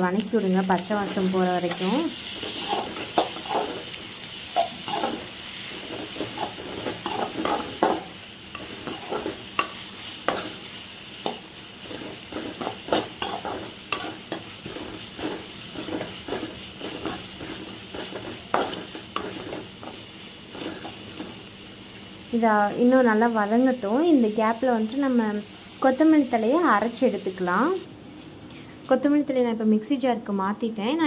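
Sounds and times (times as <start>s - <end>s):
food sizzling in a pan: 0.0s - 29.8s
metal spoon scraping a pan: 0.6s - 21.4s.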